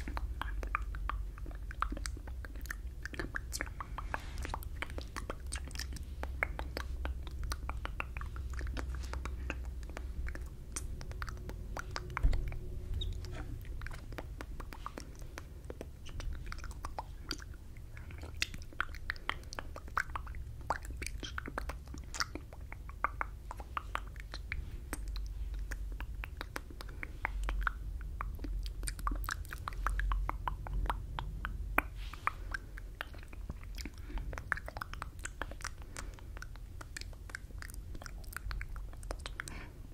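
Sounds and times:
low rumble: 0.0s - 22.1s
wet lip and tongue clicks: 0.0s - 39.9s.

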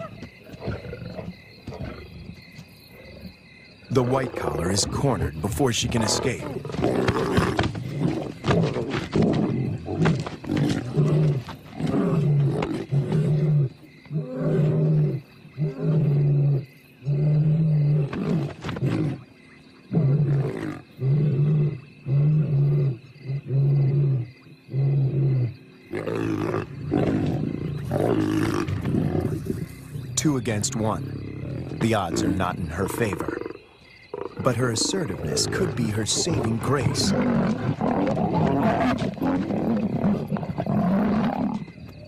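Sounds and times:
lions snarling: 0.0s - 19.3s, 19.9s - 42.0s
lions growling: 0.0s - 42.0s.

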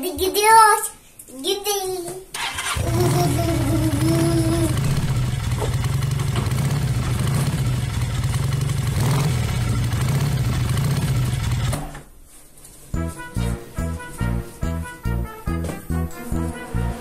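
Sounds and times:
motorcycle engine rumbling: 2.4s - 11.9s.

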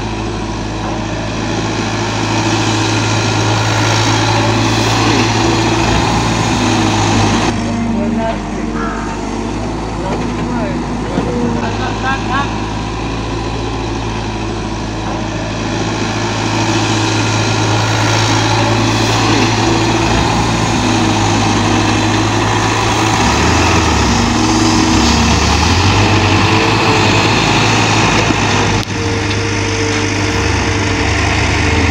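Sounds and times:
diesel engines running: 0.0s - 31.9s.

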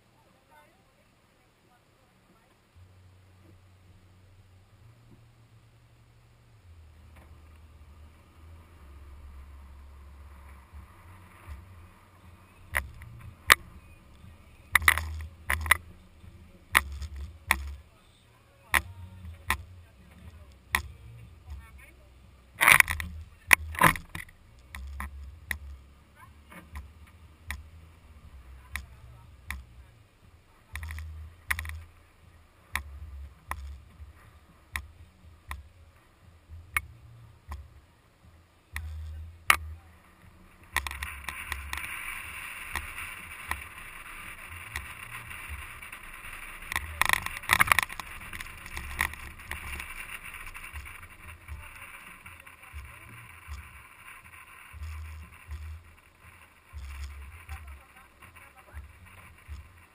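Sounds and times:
low rumbles: 0.0s - 59.9s
steady hiss: 0.0s - 59.9s
wind buffeting camera: 38.8s - 59.9s.

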